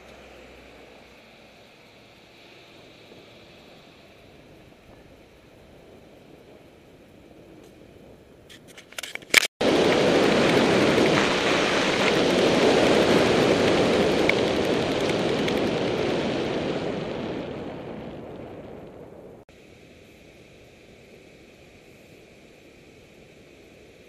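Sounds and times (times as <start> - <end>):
wind rushing over microphone: 1.7 - 19.5.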